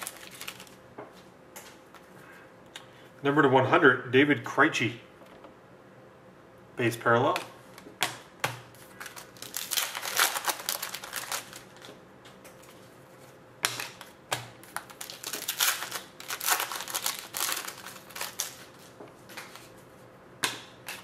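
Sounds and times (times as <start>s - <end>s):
foil wrapper crinkling: 0.0s - 0.8s, 8.7s - 12.0s, 13.9s - 19.7s
wrapper tearing: 0.0s - 0.8s, 8.8s - 11.9s, 14.0s - 19.6s.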